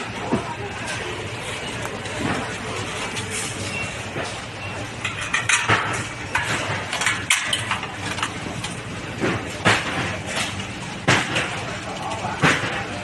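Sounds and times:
metal tubes clinking: 0:04.9 - 0:08.7.

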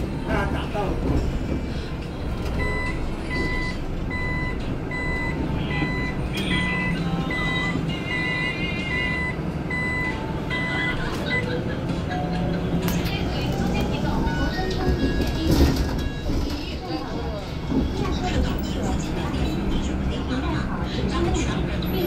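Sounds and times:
bus driving hum: 0:00.0 - 0:22.0
bus warning buzzer beeping: 0:02.6 - 0:12.6, 0:13.6 - 0:16.9.

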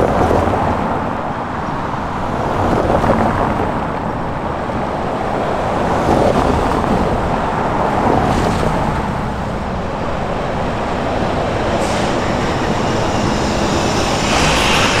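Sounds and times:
traffic driving past: 0:04.7 - 0:15.0
tyre and engine noise: 0:08.0 - 0:15.0.

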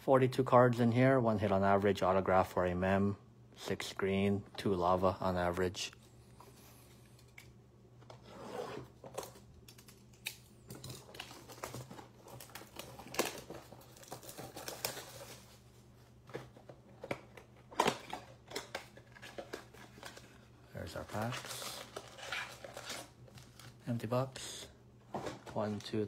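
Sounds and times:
cardboard tearing and rustling: 0:10.8 - 0:15.6, 0:21.0 - 0:23.7.

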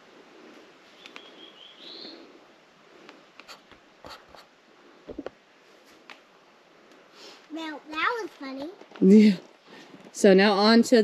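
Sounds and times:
bird chirp: 0:00.9 - 0:02.3.

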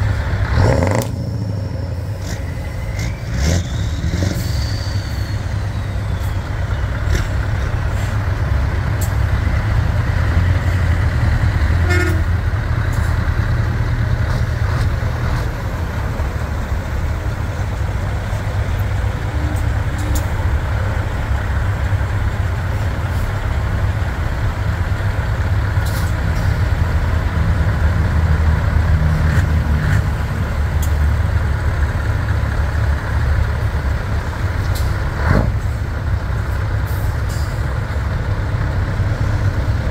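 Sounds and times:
diesel truck engines rumbling: 0:00.0 - 0:39.9
horn toot: 0:11.8 - 0:12.3.

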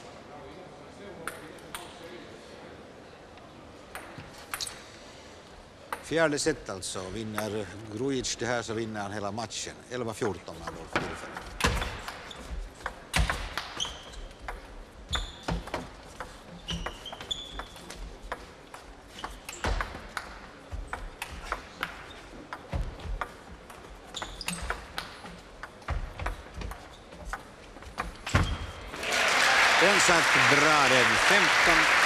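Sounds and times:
shoes squeaking on wooden floor: 0:10.8 - 0:28.9.

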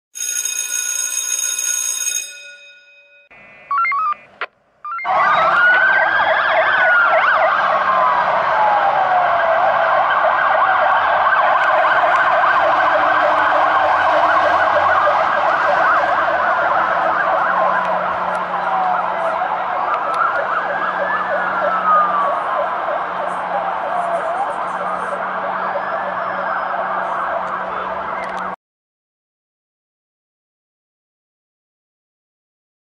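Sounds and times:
fire engine siren wailing: 0:04.9 - 0:28.6
warbling siren: 0:04.9 - 0:28.6.

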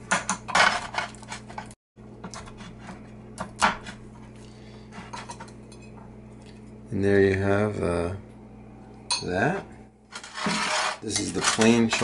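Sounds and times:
low steady hum: 0:00.0 - 0:12.0
knife scraping ceramic plate: 0:10.1 - 0:12.0.

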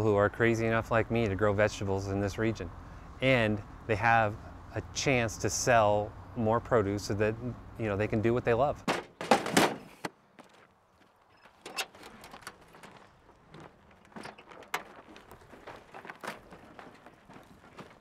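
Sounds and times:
garden cart knocking and rattling: 0:08.8 - 0:10.1, 0:11.4 - 0:18.0
footsteps on stony soil: 0:09.4 - 0:18.0.

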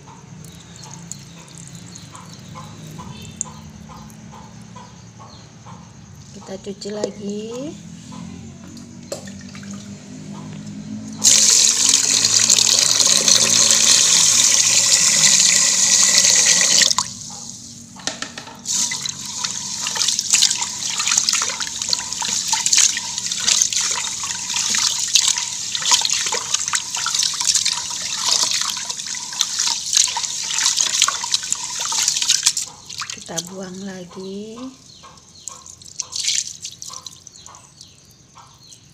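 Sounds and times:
tap water running into pot: 0:11.2 - 0:17.2, 0:18.6 - 0:33.5
hand sloshing rice in water: 0:18.7 - 0:33.2.

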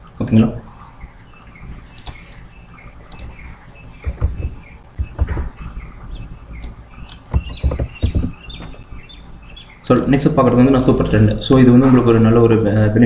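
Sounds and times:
small birds chirping: 0:00.0 - 0:11.9
computer mouse clicks: 0:01.4 - 0:03.4, 0:04.0 - 0:05.5, 0:06.6 - 0:08.8
keyboard taps: 0:04.0 - 0:05.6, 0:06.6 - 0:08.8
low thumps on desk: 0:07.3 - 0:08.8.

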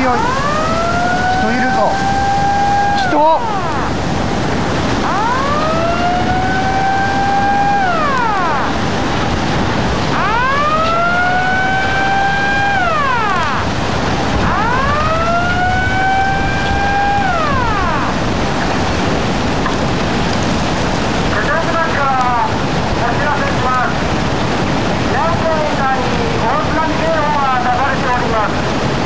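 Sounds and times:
warning siren wailing: 0:00.0 - 0:19.5
rush of wind and water: 0:00.0 - 0:29.0.

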